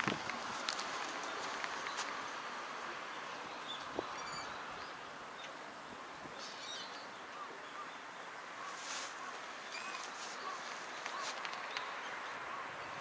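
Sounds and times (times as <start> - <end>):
distant background noise: 0.0 - 13.0
wind: 0.0 - 13.0
faint bird chirps: 6.4 - 13.0.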